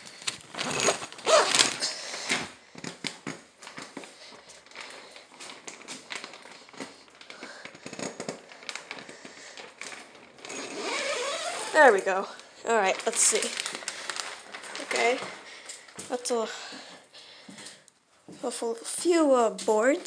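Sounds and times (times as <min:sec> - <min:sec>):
plastic sheeting crinkling: 0:00.0 - 0:07.8, 0:08.4 - 0:16.4.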